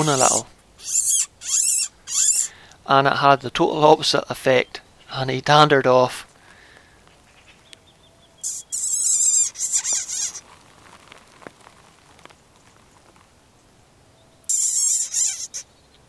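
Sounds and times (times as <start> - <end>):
lip squeaks imitating mouse: 0.0 - 2.5, 8.4 - 10.4, 14.5 - 15.7.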